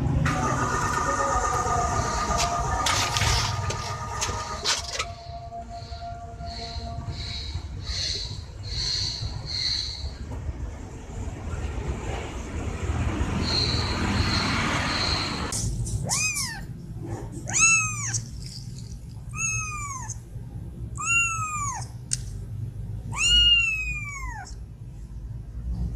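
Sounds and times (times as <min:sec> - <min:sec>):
kitten meowing: 0:16.0 - 0:16.7, 0:17.4 - 0:18.7, 0:19.3 - 0:20.2, 0:21.0 - 0:22.0, 0:23.0 - 0:24.6.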